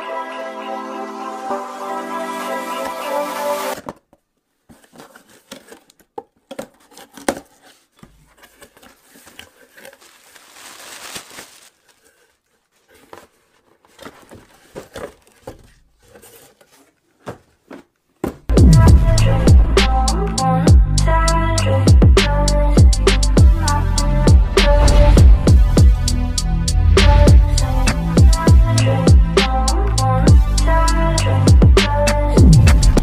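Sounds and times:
background music: 0.0 - 3.8, 18.5 - 33.0
packaging rustling and crinkling: 4.6 - 18.0.

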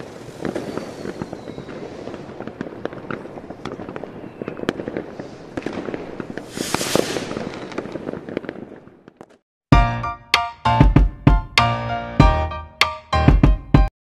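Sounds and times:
firecrackers crackling and popping: 0.0 - 9.4
hissing burst: 6.4 - 7.9.

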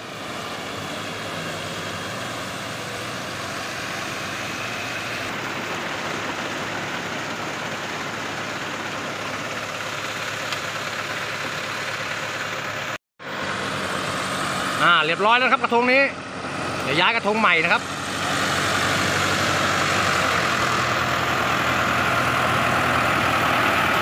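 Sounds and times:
tractor engine running under load: 0.0 - 24.0.

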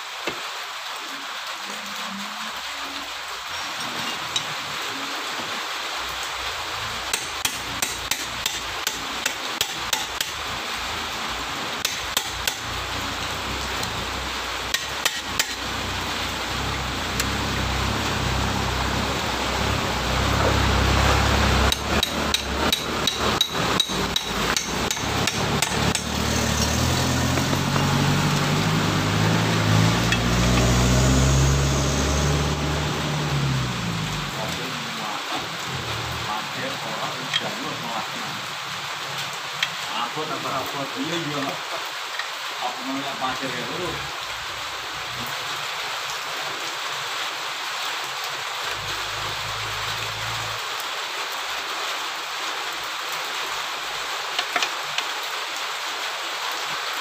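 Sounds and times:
hand tool tapping metal: 7.1 - 10.4, 11.8 - 12.7, 14.7 - 15.6, 21.7 - 26.3.

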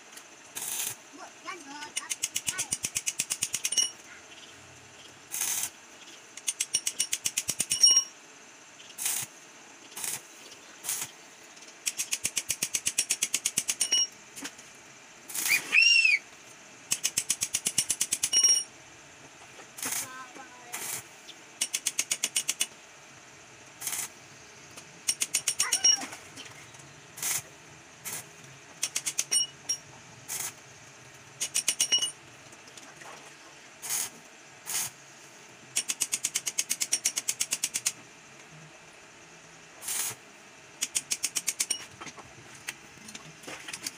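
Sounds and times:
welding arc hissing and crackling: 0.5 - 3.6, 5.3 - 5.8, 9.0 - 9.4, 10.0 - 11.2, 15.3 - 15.6, 19.8 - 22.7, 23.8 - 24.2, 27.2 - 27.5, 28.1 - 29.3, 30.3 - 30.6, 33.8 - 35.0, 39.8 - 40.2.

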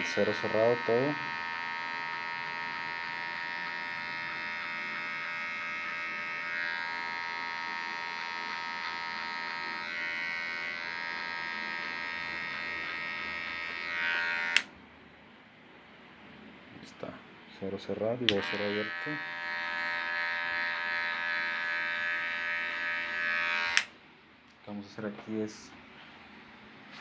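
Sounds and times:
hair clipper buzzing: 0.0 - 14.7, 18.2 - 23.9.

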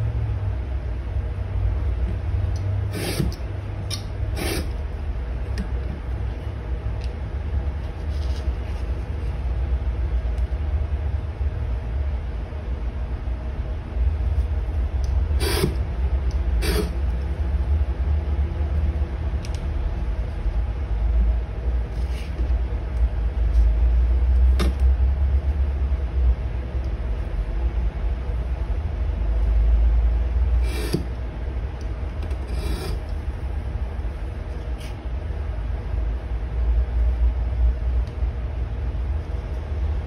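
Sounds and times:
steady low rumble: 0.0 - 40.0.

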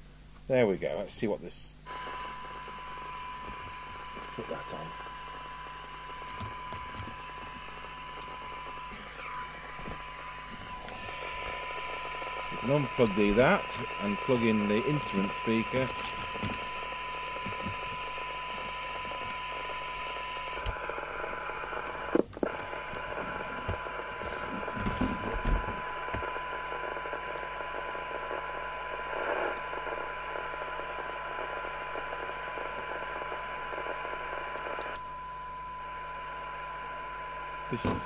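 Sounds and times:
radio receiver hiss: 0.0 - 38.0
steady test tone: 1.9 - 26.9.

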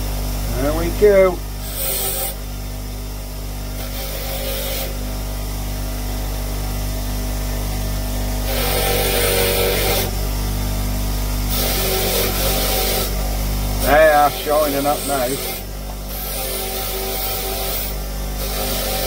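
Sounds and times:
bench grinder humming: 0.0 - 19.0
metal scraping on grinding wheel: 0.5 - 2.4, 8.4 - 10.1, 11.5 - 19.0.

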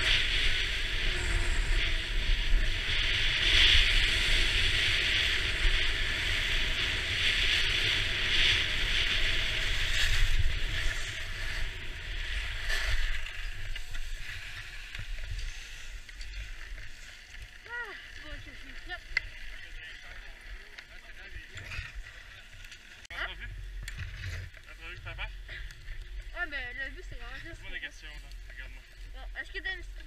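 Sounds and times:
skis hissing over packed snow: 0.0 - 20.0
wind rumbling on microphone: 0.0 - 30.0.

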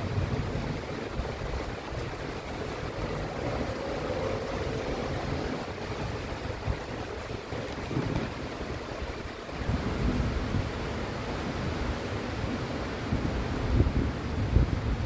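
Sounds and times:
low rumble: 0.0 - 8.4
rain falling: 0.0 - 15.0.

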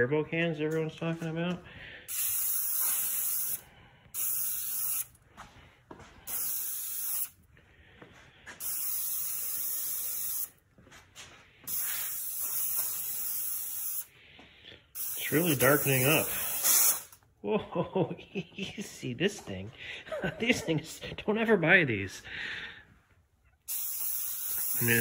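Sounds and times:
spray paint can hissing: 2.1 - 5.2, 6.3 - 7.4, 8.6 - 10.6, 11.7 - 14.1, 15.0 - 17.2, 23.7 - 25.0.

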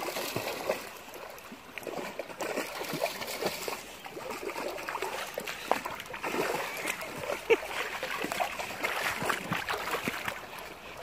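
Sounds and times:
dog splashing through water: 0.0 - 11.0
stream trickling: 0.0 - 11.0.

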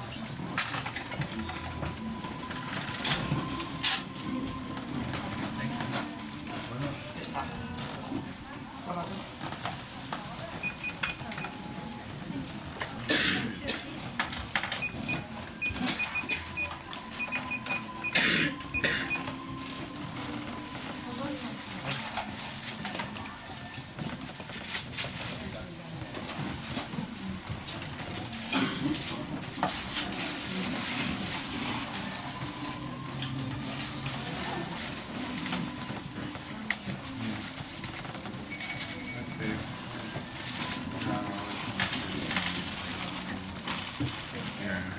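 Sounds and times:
crowd chatter: 0.0 - 44.9
keypad beeps: 10.6 - 11.8, 14.6 - 19.7.

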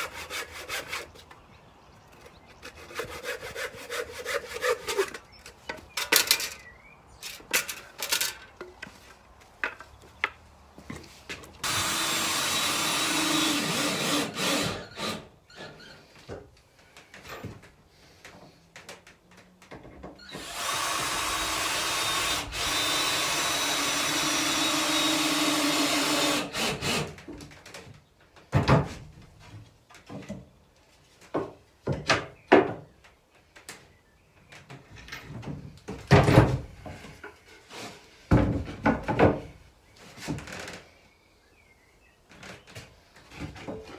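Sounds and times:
cordless drill driving screws: 11.6 - 15.9, 20.2 - 27.2.

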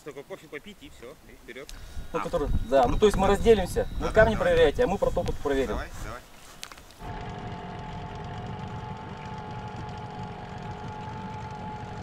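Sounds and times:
boat motor running: 7.0 - 12.0.

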